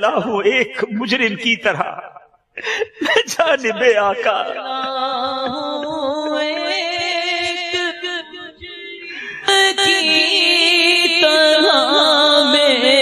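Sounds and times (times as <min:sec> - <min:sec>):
melodic voice chanting: 0:02.7 - 0:13.0.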